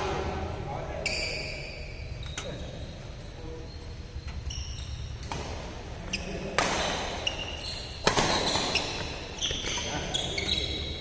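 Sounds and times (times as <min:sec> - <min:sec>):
shoes squeaking on court: 0:00.9 - 0:11.0
racket hitting shuttlecock: 0:05.2 - 0:05.8, 0:06.5 - 0:09.6.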